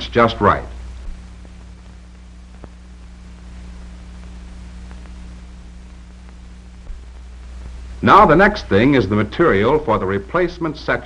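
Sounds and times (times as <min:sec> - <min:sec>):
film soundtrack hiss and hum: 0:00.0 - 0:11.0
faint clicks: 0:01.0 - 0:02.8, 0:04.2 - 0:05.3.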